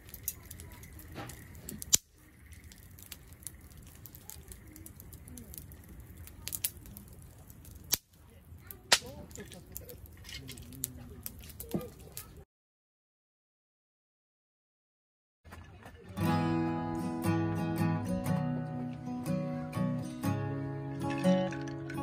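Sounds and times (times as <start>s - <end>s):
burning logs popping: 0.0s - 12.4s, 20.8s - 22.0s
campfire crackling: 0.0s - 12.4s, 16.2s - 22.0s.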